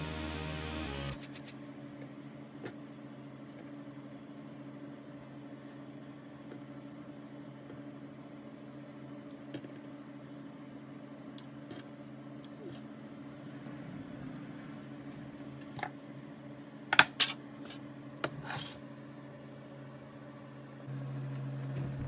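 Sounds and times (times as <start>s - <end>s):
low hum: 0.0s - 1.5s.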